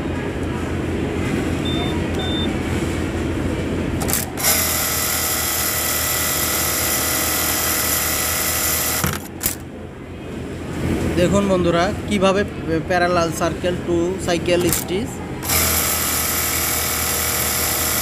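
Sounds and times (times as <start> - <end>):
low machine hum: 0.0 - 18.0
sewing machine high-pitched whine: 4.0 - 9.6, 15.4 - 18.0.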